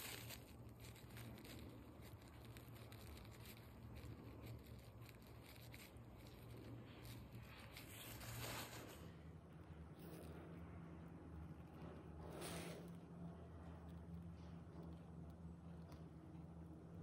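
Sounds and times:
faint low hum: 0.0s - 17.0s
paper wipe rustling: 2.2s - 9.1s.

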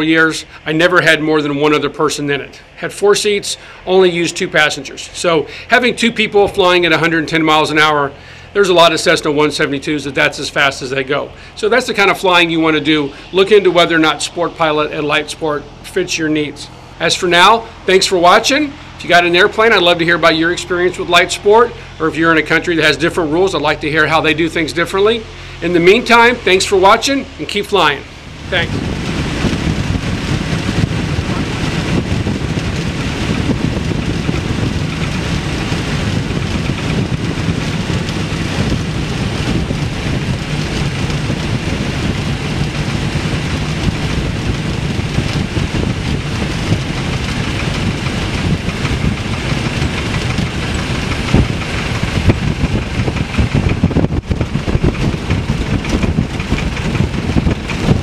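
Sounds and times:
small plane engine and propeller: 0.0s - 58.0s
wind rush in cockpit: 0.0s - 58.0s
wheels thumping on grass: 28.5s - 58.0s.

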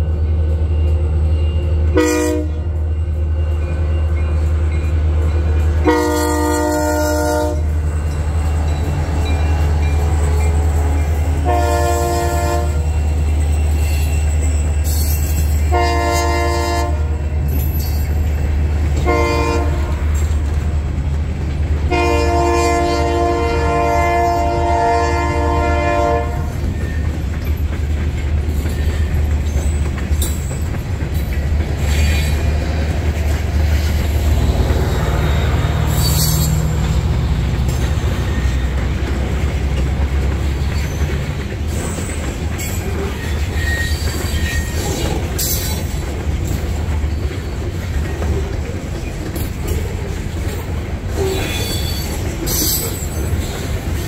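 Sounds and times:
train horn: 0.6s - 4.5s, 5.7s - 7.8s, 10.3s - 13.0s, 15.6s - 17.4s, 19.0s - 20.4s, 21.8s - 26.9s
freight cars rolling past: 2.9s - 16.6s, 24.7s - 54.0s
wheel squeals: 12.8s - 15.7s, 34.4s - 37.1s, 40.5s - 45.9s, 51.1s - 54.0s.

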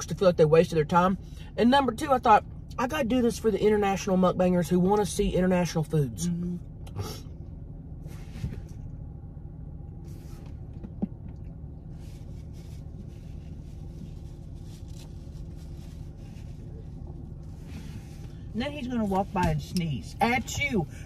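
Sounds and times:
car idling rumble: 0.0s - 21.0s
paper napkin rustling: 12.0s - 18.4s.

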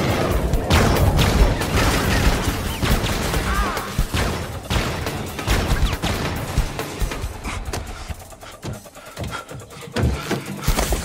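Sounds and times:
rapid gunfire: 0.0s - 7.4s.

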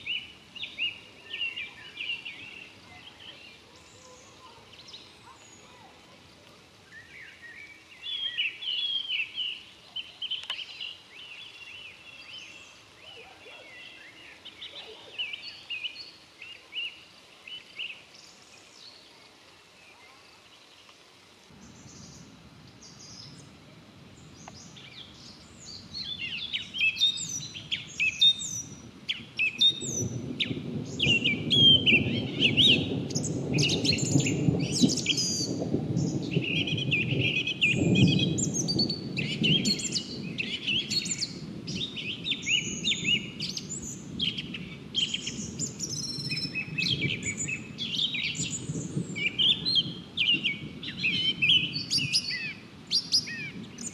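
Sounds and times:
songbirds singing and chirping: 0.0s - 53.9s
distant thunder rumble: 21.6s - 53.9s.

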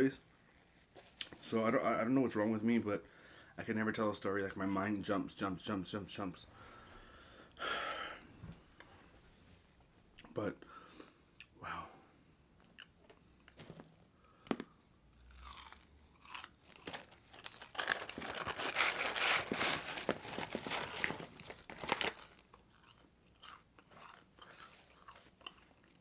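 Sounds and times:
crunchy chewing of fries: 14.5s - 26.0s.

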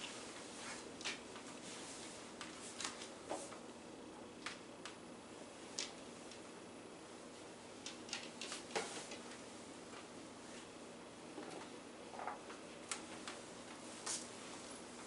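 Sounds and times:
room hiss: 0.0s - 15.0s
paper rustling: 0.6s - 3.6s.

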